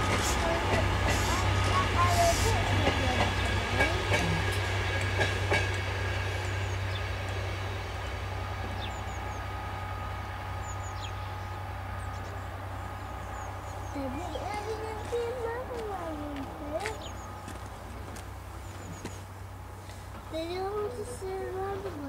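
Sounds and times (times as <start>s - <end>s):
train wheels clicking over rails: 0.0s - 20.9s
train rumbling past: 0.0s - 22.0s
birds chirping faintly: 6.0s - 21.4s.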